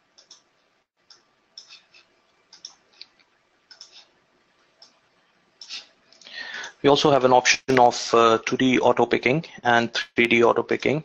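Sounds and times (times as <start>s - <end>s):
computer mouse clicks: 0.2s - 0.4s, 1.1s - 4.1s.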